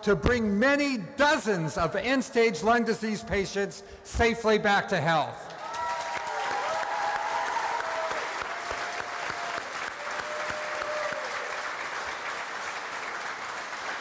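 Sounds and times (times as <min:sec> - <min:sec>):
audience applauding: 0:05.5 - 0:14.0.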